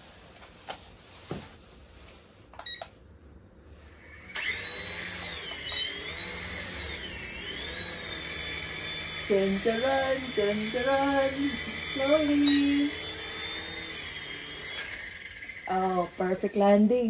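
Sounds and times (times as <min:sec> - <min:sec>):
toy helicopter rotor whine: 0:03.8 - 0:17.0.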